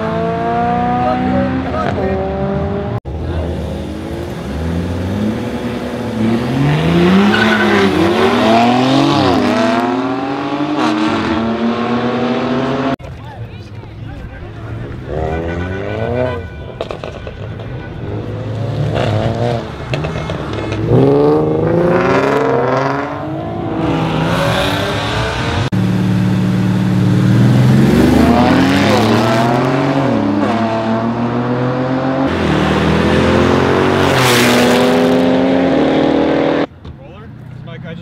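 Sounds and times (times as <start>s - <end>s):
car engines revving: 0.0s - 38.0s.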